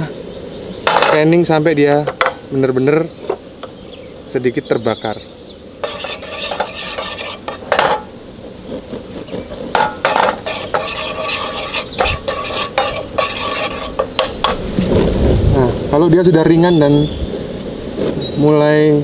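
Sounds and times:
wooden spatula scraping a pan: 5.8 - 8.1, 9.8 - 14.6.

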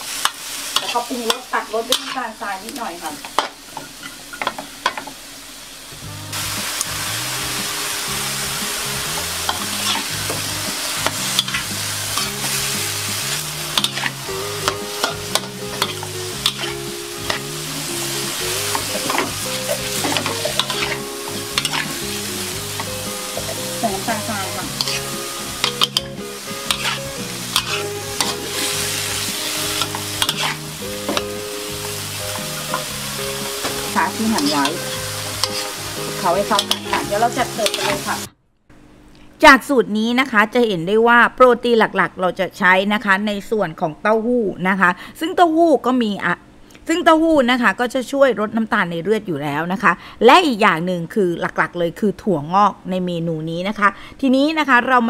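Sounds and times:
spatula scraping wok: 0.0 - 5.2, 6.3 - 38.3
food sizzling in hot oil: 0.0 - 38.3.

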